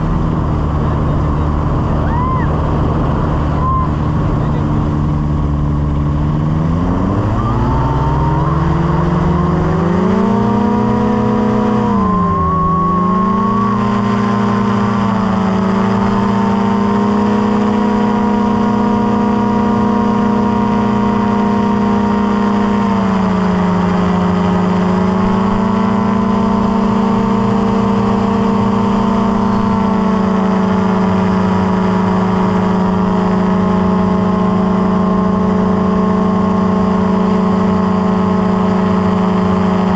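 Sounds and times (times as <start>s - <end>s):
small aircraft engine droning: 0.0s - 39.9s.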